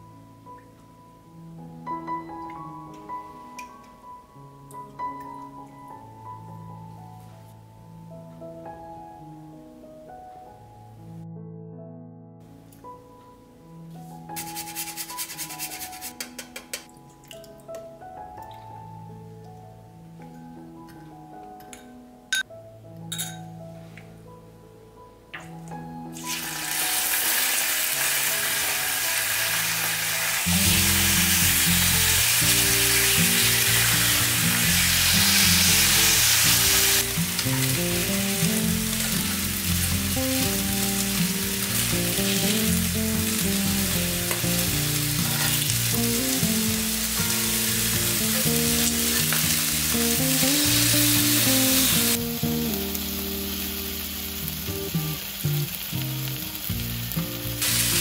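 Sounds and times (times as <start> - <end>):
background music: 0.0 - 58.0
chicken sizzling in oil: 14.4 - 16.4, 26.2 - 58.0.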